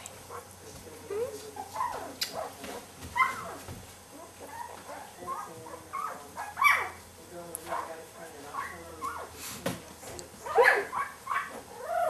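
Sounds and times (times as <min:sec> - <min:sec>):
puppy whimpering and squeaking: 0:01.1 - 0:02.5, 0:03.2 - 0:03.6, 0:04.4 - 0:07.0, 0:08.5 - 0:09.3, 0:10.4 - 0:12.0.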